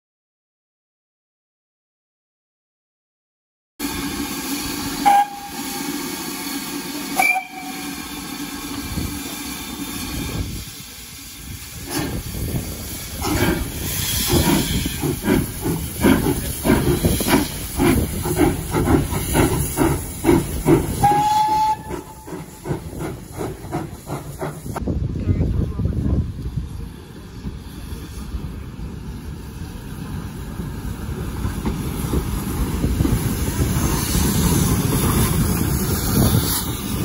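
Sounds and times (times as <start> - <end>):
steam hissing: 3.8 - 24.8, 26.7 - 37.0
steam locomotive chuffing: 3.8 - 24.8, 26.6 - 37.0
train whistle toot: 5.0 - 6.0, 7.1 - 8.0, 21.0 - 22.4.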